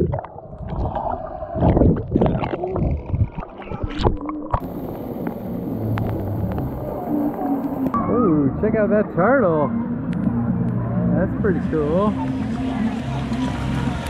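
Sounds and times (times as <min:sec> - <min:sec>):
muffled underwater bubbling: 0:00.0 - 0:08.0
splashing fountain jets: 0:04.6 - 0:08.0, 0:12.0 - 0:14.0.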